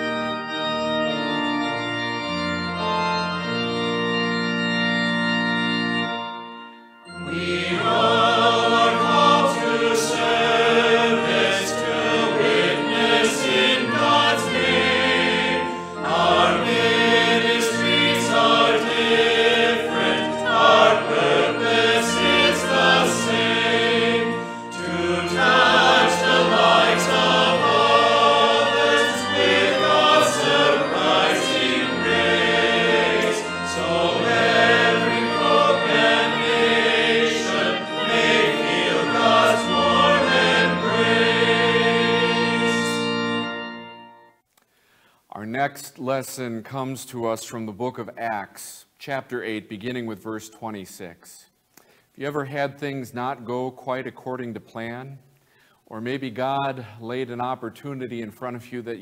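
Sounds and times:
organ playing a hymn: 0.0 - 44.4
voices singing a hymn: 7.1 - 44.2.

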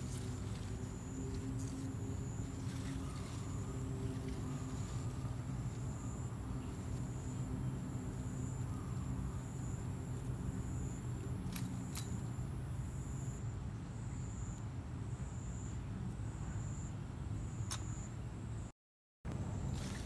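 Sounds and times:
faint high whine pulsing: 0.0 - 18.7
low outdoor rumble: 0.0 - 18.7.

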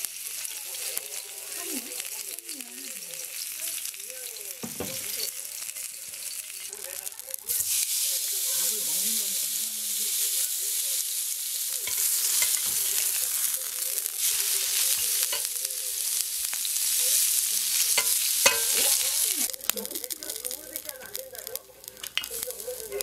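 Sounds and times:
beef sizzling on grill pan: 0.0 - 23.0
metal tongs clicking on pan: 11.8 - 13.2, 14.0 - 15.7, 17.7 - 23.0.

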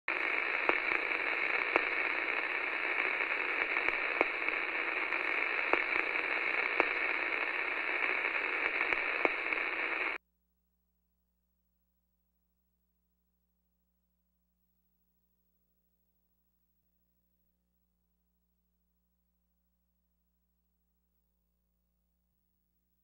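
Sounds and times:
static hiss with crackles and pops: 0.0 - 10.2.

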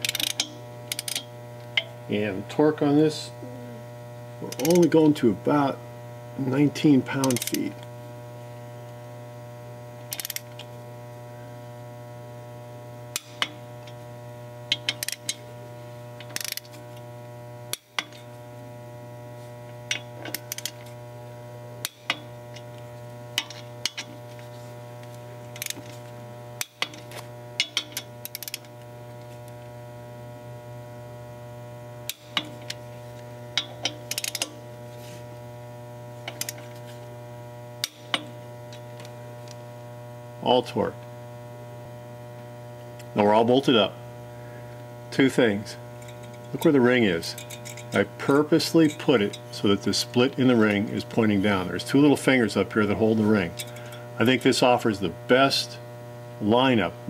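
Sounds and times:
torque wrench ratcheting: 0.0 - 1.3, 7.2 - 7.6, 10.1 - 10.7, 14.7 - 15.4, 16.2 - 16.8, 19.9 - 20.8, 25.5 - 25.9, 27.6 - 28.7, 33.6 - 34.6
electrical mains hum: 0.0 - 57.0.

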